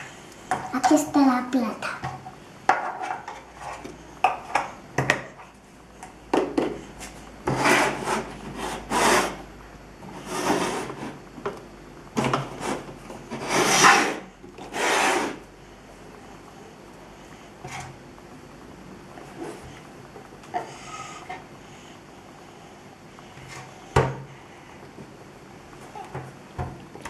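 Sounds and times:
dough rubbing and scraping: 2.8s - 4.6s, 6.8s - 11.3s, 12.4s - 15.5s.

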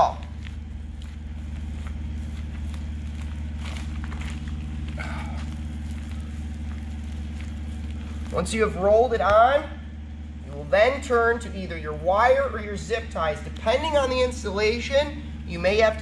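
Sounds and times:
crackling and rustling of patch: 0.0s - 9.4s
low machine hum: 0.0s - 16.0s.

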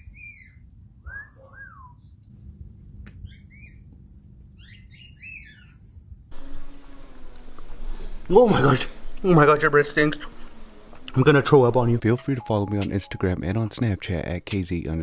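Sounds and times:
low steady hum: 6.3s - 15.0s.

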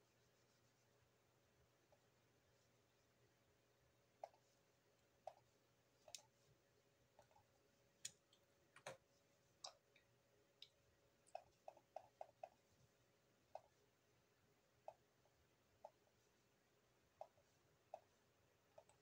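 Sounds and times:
computer mouse clicks: 18.8s - 19.0s.

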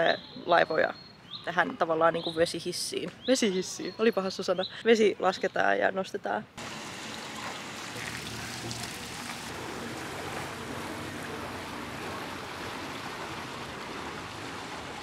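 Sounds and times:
rushing water: 6.6s - 15.0s.

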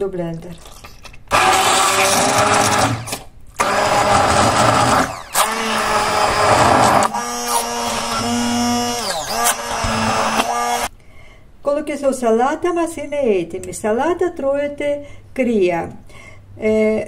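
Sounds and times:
stick blender running in a pot: 1.3s - 10.9s.

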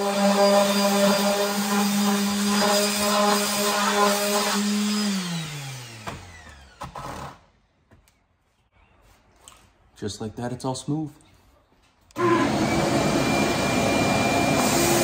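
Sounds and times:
orbital sander running: 0.0s - 7.2s.

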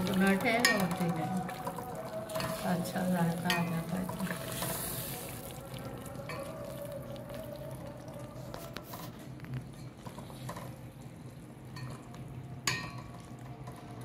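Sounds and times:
spoon stirring thick food: 0.0s - 14.0s
spoon clinking against pot: 0.2s - 1.7s, 3.4s - 4.5s, 11.8s - 13.2s.

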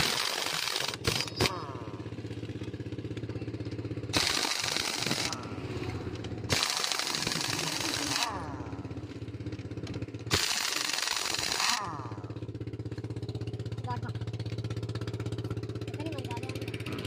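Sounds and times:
pneumatic impact wrench hammering: 0.0s - 2.0s, 4.1s - 8.8s, 9.6s - 12.3s
engine hum: 0.0s - 17.0s.

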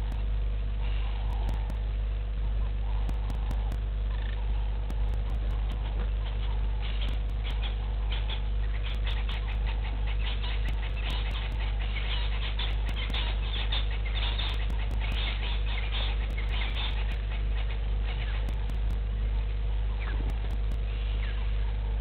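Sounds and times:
insects clicking and chirping: 0.0s - 0.2s, 1.3s - 1.8s, 3.1s - 4.3s, 4.9s - 6.0s, 7.0s - 13.4s, 14.2s - 17.3s, 18.4s - 19.0s, 20.3s - 20.8s
steady low hum: 0.0s - 22.0s.

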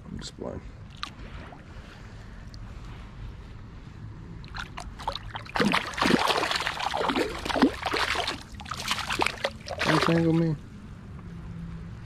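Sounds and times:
low river background: 0.0s - 12.0s
fish splashing at water surface: 4.5s - 10.5s.

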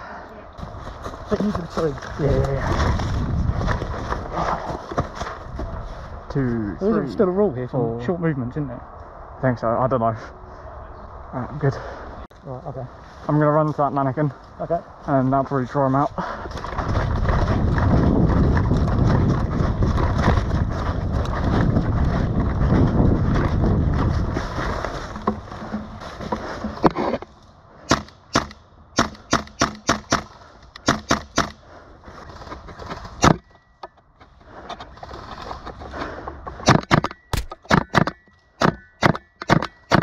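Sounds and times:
rustling and thudding of running: 0.6s - 6.2s, 16.2s - 27.2s.

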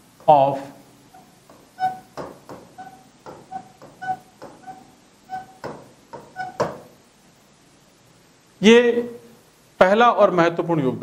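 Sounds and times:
pen squeaking on a board: 1.1s - 6.9s.

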